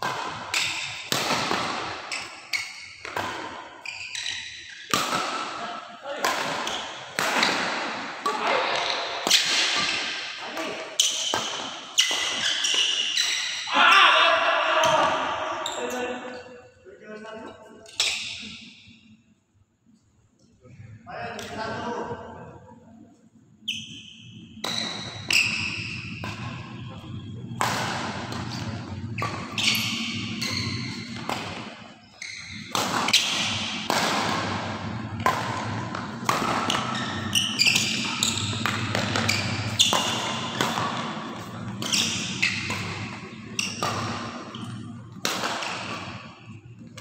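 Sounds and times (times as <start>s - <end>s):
racket hitting shuttlecock: 0.0s - 13.7s, 24.6s - 26.8s, 27.5s - 47.0s
shoes squeaking on court floor: 0.4s - 5.0s, 8.4s - 13.7s, 23.6s - 33.9s, 34.8s - 47.0s.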